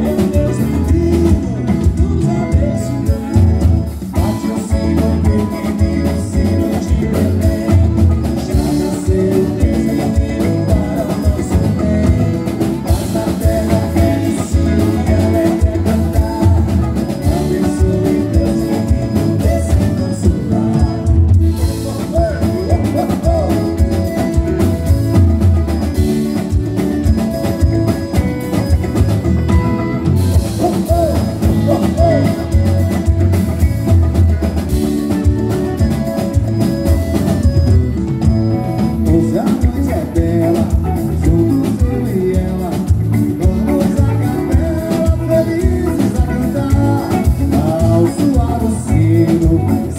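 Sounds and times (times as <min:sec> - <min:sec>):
men singing into microphones: 0:00.0 - 0:25.1, 0:30.4 - 0:33.8, 0:38.8 - 0:49.9
accordion: 0:00.0 - 0:49.9
live band playing: 0:00.0 - 0:49.9.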